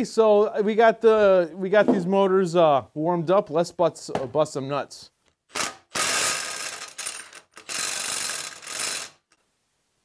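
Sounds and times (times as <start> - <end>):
impact wrench hammering: 5.5 - 9.2.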